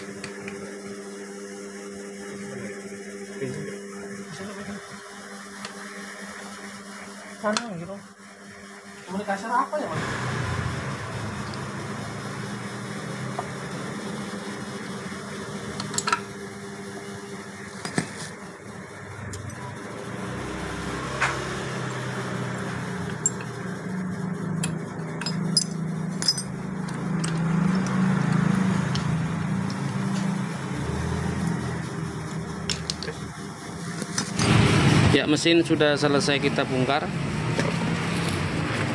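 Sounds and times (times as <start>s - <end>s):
steady low hum: 0.0s - 38.9s
metal parts clinking: 25.2s - 27.5s.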